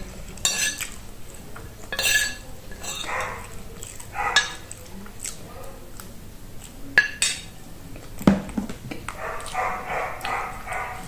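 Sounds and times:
metal spoon clinking on plate: 0:00.4 - 0:01.0, 0:01.9 - 0:03.5, 0:04.3 - 0:04.8, 0:07.0 - 0:07.5
dog barking: 0:02.9 - 0:04.8, 0:05.4 - 0:05.9, 0:09.1 - 0:11.0.

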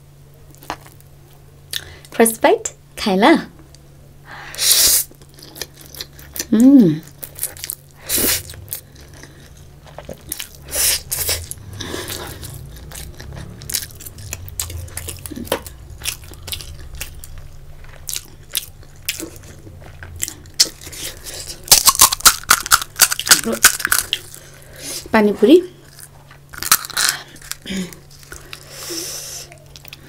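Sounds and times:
wet chewing: 0:05.1 - 0:25.1
crisp shell crackling: 0:11.4 - 0:24.6, 0:25.9 - 0:28.7.

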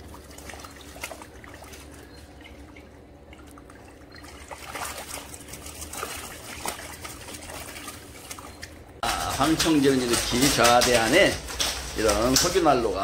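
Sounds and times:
water trickling and dripping: 0:00.0 - 0:09.0
fish thrashing and splashing: 0:00.0 - 0:10.9.

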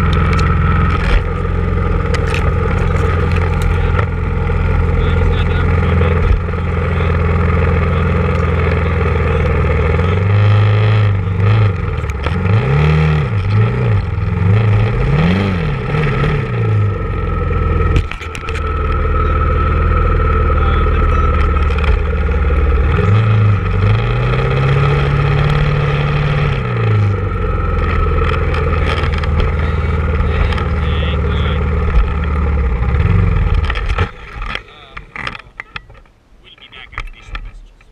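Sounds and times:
atv engine revving: 0:00.0 - 0:36.1.

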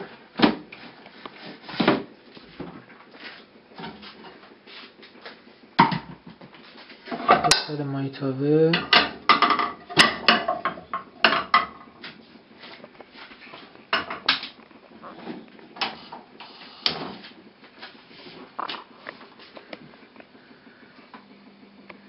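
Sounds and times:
frying pan knocking on metal grate: 0:05.8 - 0:06.4, 0:08.7 - 0:11.8.

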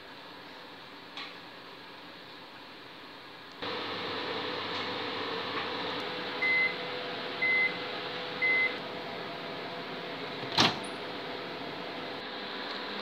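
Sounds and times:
microwave hum: 0:03.6 - 0:13.0
microwave oven beeps: 0:06.4 - 0:08.8.

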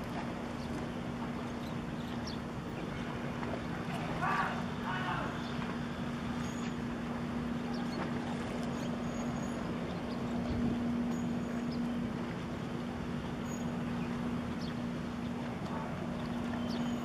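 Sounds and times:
ship engine drone: 0:00.0 - 0:17.0
wind and water noise: 0:00.0 - 0:17.0.

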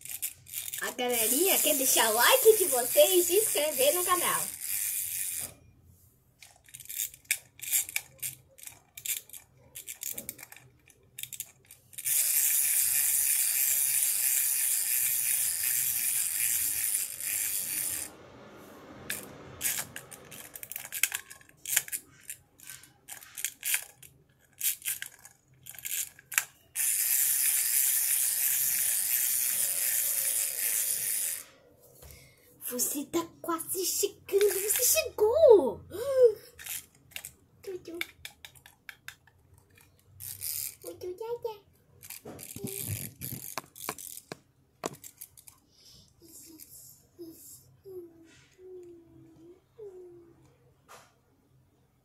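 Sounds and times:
toy mechanism clicking: 0:00.0 - 0:05.7, 0:06.4 - 0:18.2, 0:19.0 - 0:31.6, 0:32.7 - 0:50.5
high whirring: 0:00.1 - 0:05.6, 0:12.0 - 0:22.0, 0:25.8 - 0:31.6, 0:42.0 - 0:44.3.

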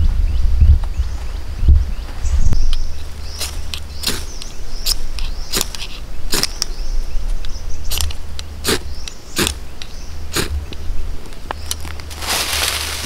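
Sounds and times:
flint striker scraping strikes: 0:03.4 - 0:06.8.

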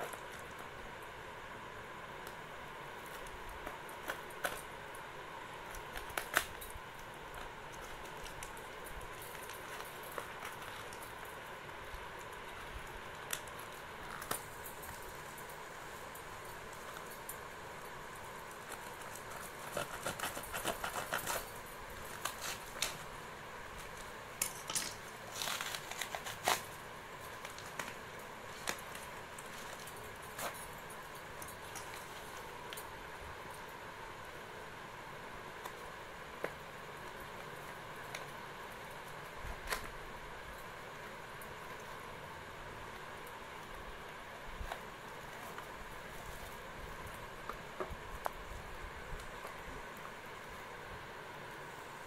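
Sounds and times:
steady hiss: 0:00.0 - 0:52.0
scissors snipping packing tape: 0:05.7 - 0:06.8, 0:18.6 - 0:23.1, 0:23.8 - 0:30.8
tape and cardboard pulled apart: 0:25.0 - 0:30.6.

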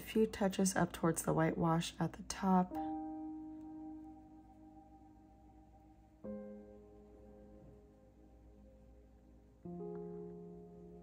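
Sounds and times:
faint piano chord: 0:02.6 - 0:11.0.

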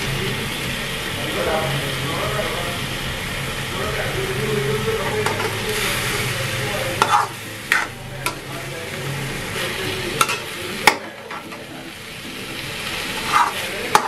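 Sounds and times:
chicken sizzling in a wok: 0:00.0 - 0:14.0
metal spatula scraping a pan: 0:05.2 - 0:11.6, 0:12.8 - 0:14.0.

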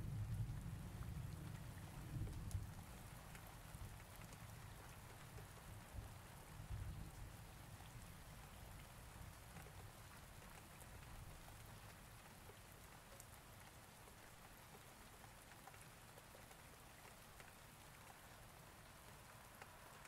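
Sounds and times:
faint steady hiss: 0:00.0 - 0:20.0
light ticks: 0:02.2 - 0:02.7, 0:10.4 - 0:20.0.

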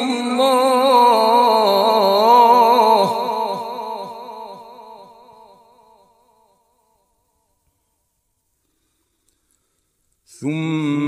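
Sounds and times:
man reciting melismatically: 0:00.0 - 0:06.0, 0:10.2 - 0:11.0.

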